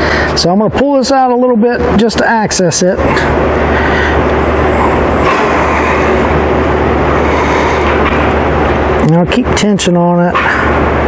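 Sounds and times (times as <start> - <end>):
low hum: 1.8 - 11.0
machinery rush: 2.9 - 9.1.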